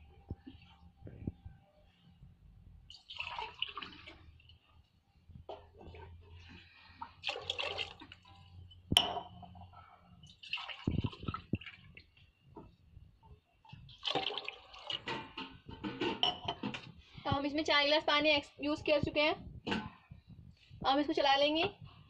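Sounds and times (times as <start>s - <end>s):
water pouring into curry: 2.9s - 4.7s, 7.2s - 8.5s, 10.3s - 12.2s, 13.9s - 15.2s.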